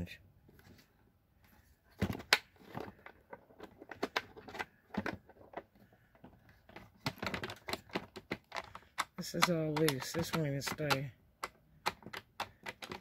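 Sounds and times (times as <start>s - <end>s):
plastic case latches clicking: 6.7s - 13.0s.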